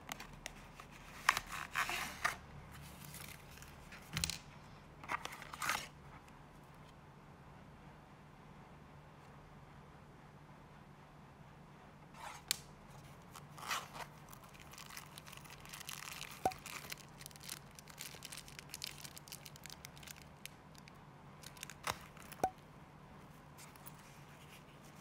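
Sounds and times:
plastic bag crinkling: 13.3s - 22.5s.

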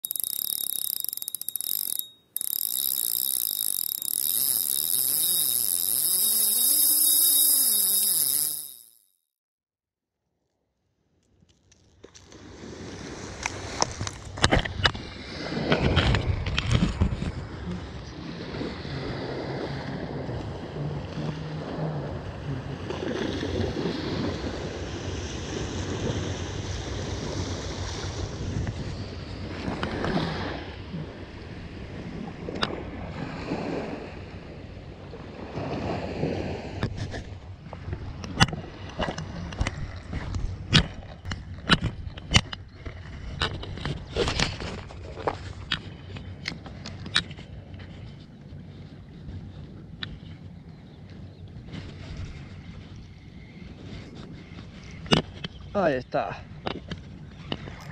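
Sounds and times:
ratchet-like clicks: 0.0s - 9.1s
wavering bending tone: 0.0s - 9.1s
wind rumbling on microphone: 12.4s - 57.9s.

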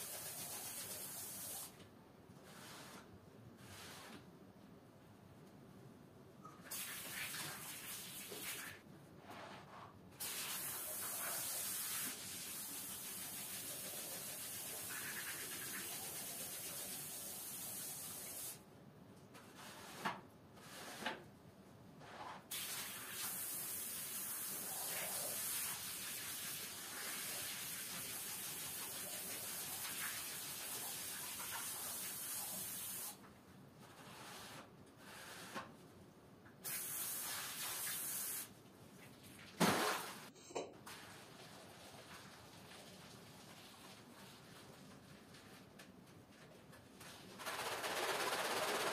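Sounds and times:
hose water spraying onto rug: 10.2s - 18.6s, 22.5s - 33.2s.

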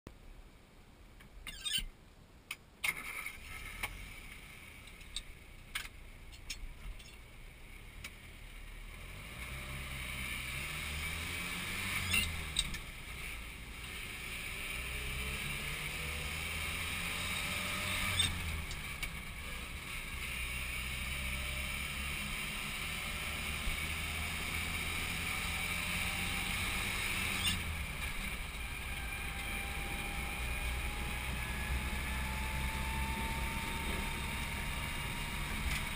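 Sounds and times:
car engine accelerating: 6.5s - 35.9s.

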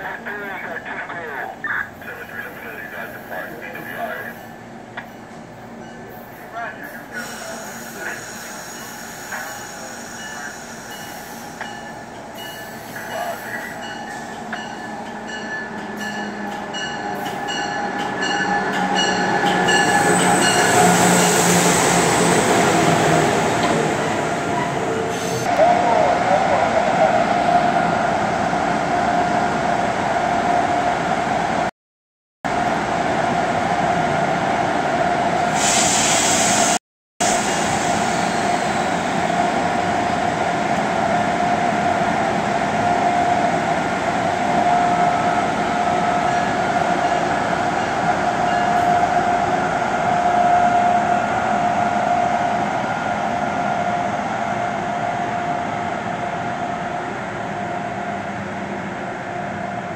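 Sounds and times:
electric locomotive whine: 0.0s - 31.7s, 37.3s - 59.9s
burst of hissing air: 35.6s - 36.8s.

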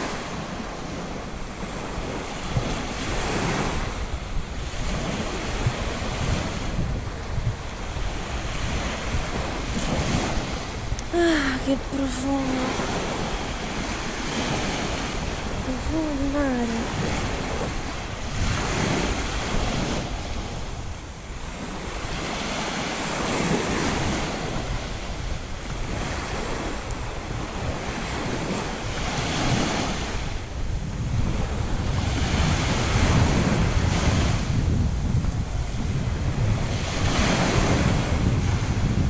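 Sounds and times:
waves breaking on beach: 0.0s - 39.0s
wind buffeting microphone: 0.0s - 39.0s.

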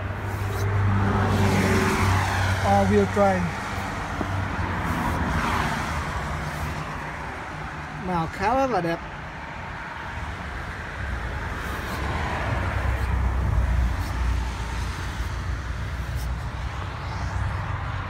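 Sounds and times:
vehicle passing by: 0.0s - 8.0s, 9.4s - 18.0s
road traffic rumble and tyre hiss: 0.0s - 18.0s.

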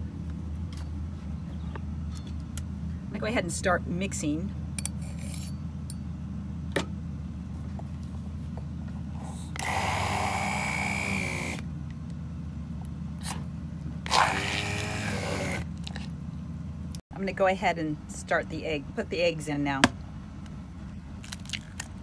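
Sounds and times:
steady low hum: 0.0s - 22.0s
immersion blender whirring: 9.6s - 11.6s, 14.1s - 15.7s.

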